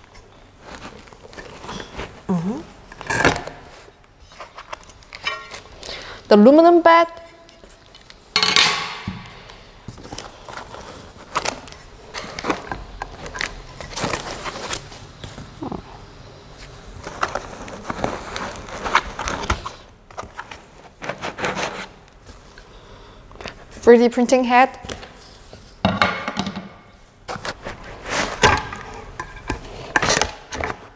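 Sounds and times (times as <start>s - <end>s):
cardboard rustling and scraping: 9.9s - 15.6s, 16.6s - 22.5s, 27.3s - 30.9s.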